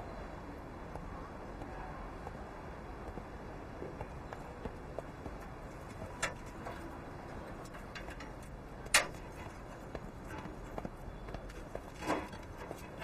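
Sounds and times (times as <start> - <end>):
metallic clicks of bicycles: 5.4 - 13.0.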